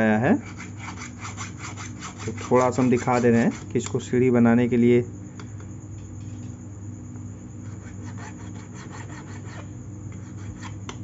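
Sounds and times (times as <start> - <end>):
hand file rubbing on metal: 0.2 - 3.8, 7.6 - 10.8.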